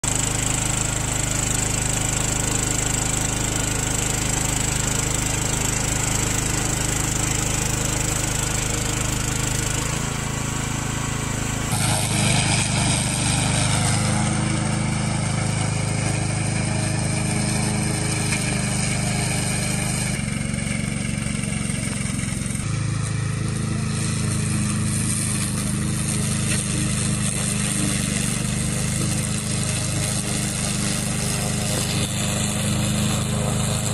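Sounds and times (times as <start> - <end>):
mower engine cutting grass: 0.0 - 33.9.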